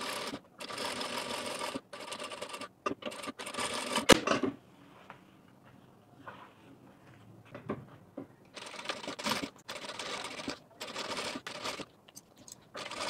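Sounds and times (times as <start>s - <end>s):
sewing machine stitching: 0.0s - 4.2s, 8.6s - 11.9s, 12.8s - 13.0s.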